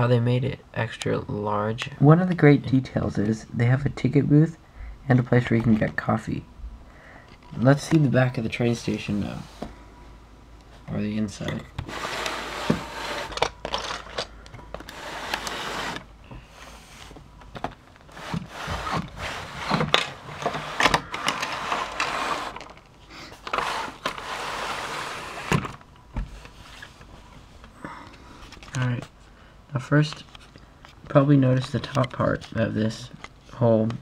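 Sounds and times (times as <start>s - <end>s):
plastic bricks clicking and scraping: 12.1s - 15.6s.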